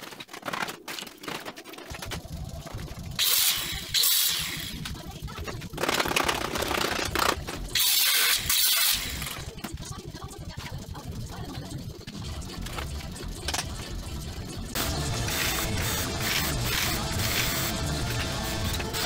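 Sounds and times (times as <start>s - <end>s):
grinder running noise: 1.3s - 19.0s
angle grinder grinding steel: 2.0s - 5.0s, 5.9s - 9.6s, 14.8s - 19.0s.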